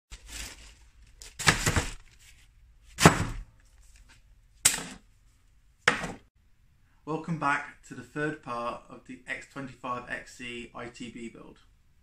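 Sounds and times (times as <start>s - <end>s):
parcel thumping on plywood floor: 5.9s - 6.2s.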